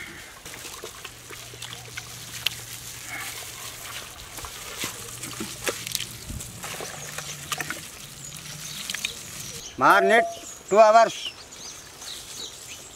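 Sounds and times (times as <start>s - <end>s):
hands kneading meat in marinade: 0.5s - 9.7s.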